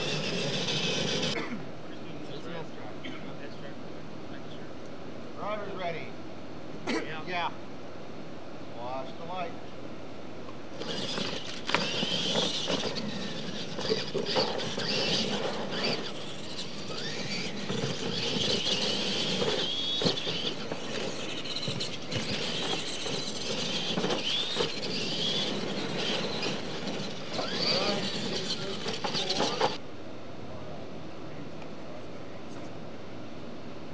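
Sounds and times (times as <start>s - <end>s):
electric motor and gear whine: 0.0s - 1.4s, 10.5s - 29.8s.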